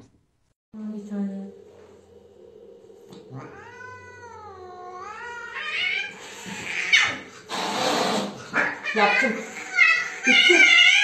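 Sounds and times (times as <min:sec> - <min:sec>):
cat yowling: 0:03.2 - 0:07.3, 0:08.5 - 0:11.0.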